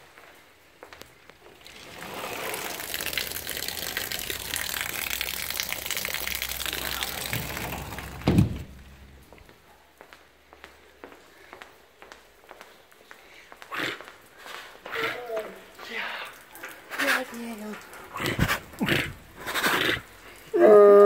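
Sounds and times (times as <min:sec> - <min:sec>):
heavy rain splashing: 0:01.4 - 0:09.4, 0:14.2 - 0:20.6
loud thump: 0:08.1 - 0:09.0.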